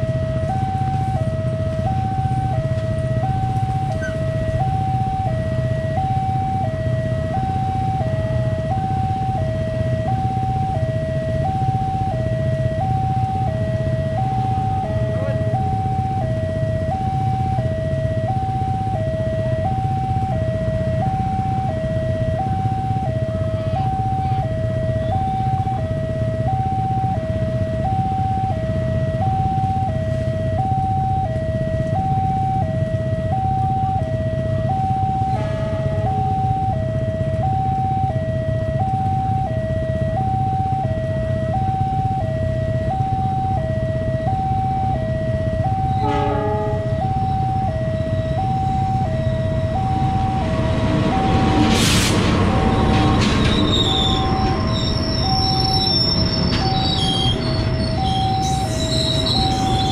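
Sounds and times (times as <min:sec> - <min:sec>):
level crossing two-tone alarm: 0:00.0 - 0:59.9
low rumble: 0:46.8 - 0:59.9.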